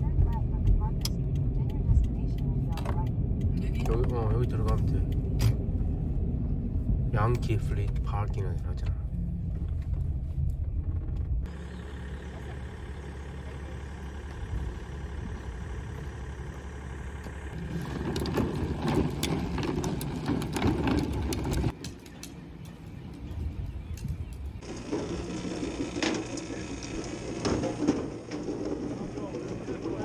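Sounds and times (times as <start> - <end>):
car engine hum inside cabin: 0.0 - 19.6
outdoor background noise: 0.0 - 30.0
cooler wheels rattling on asphalt: 7.1 - 30.0.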